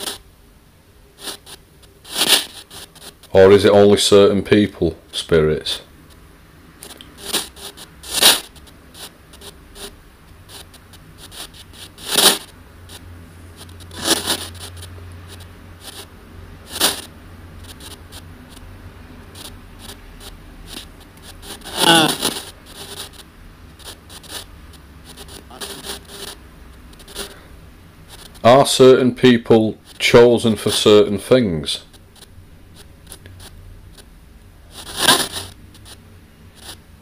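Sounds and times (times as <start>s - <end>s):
static and chopped radio bursts: 0.0s - 0.2s, 1.2s - 3.9s, 6.8s - 37.0s
low radio hiss: 0.0s - 37.0s
brief snatch of voice: 21.6s - 22.5s.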